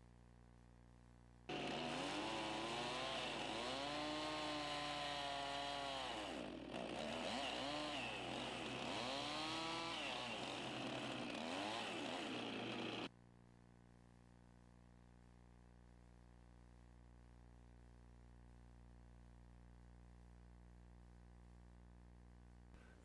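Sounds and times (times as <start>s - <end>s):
chainsaw cutting log: 1.5s - 13.1s.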